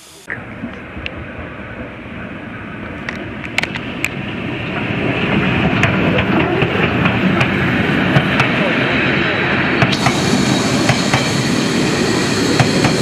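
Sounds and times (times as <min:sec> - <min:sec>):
train wheels rumbling on rails: 0:00.4 - 0:13.0.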